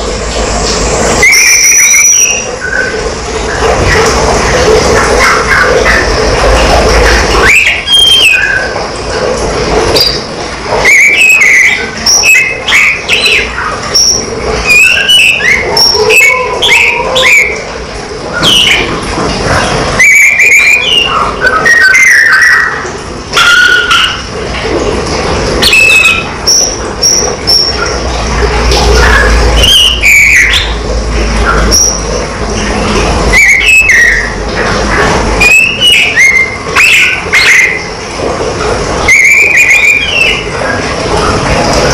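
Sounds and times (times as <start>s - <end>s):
steady background noise: 0.0s - 41.9s
songbird whistling and chirping: 1.2s - 2.9s, 7.4s - 8.7s, 10.8s - 17.6s, 18.4s - 18.9s, 20.0s - 22.8s, 29.1s - 30.7s.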